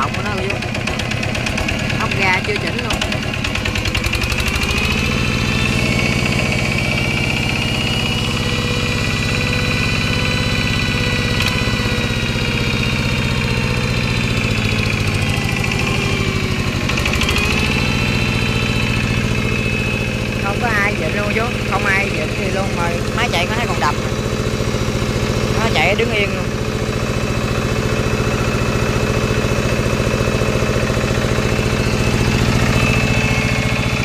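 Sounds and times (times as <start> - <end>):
diesel engine idling: 0.0 - 34.0.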